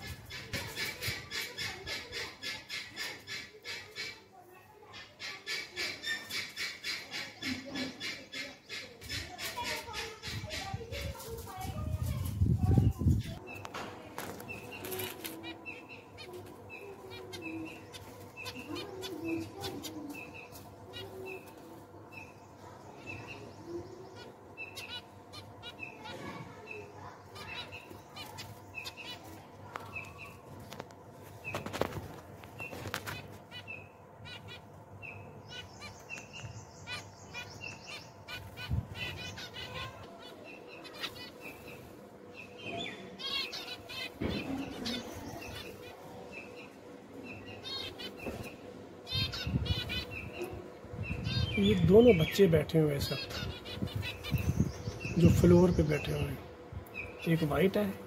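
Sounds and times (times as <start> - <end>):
finches chirping: 0.0 - 31.9, 32.5 - 58.0
high bird trill: 14.4 - 30.4, 32.6 - 58.0.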